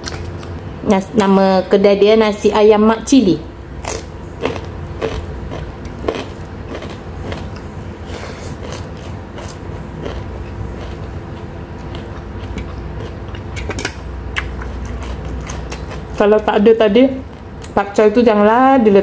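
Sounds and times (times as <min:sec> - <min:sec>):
steady low hum: 0:00.0 - 0:19.0
chewing: 0:03.8 - 0:16.4.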